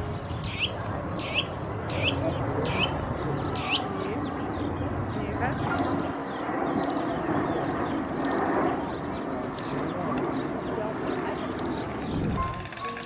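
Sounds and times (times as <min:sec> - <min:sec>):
background hubbub: 0:00.0 - 0:13.0
small bird chirping: 0:05.6 - 0:07.2, 0:07.8 - 0:08.7, 0:09.5 - 0:09.9, 0:11.4 - 0:13.0.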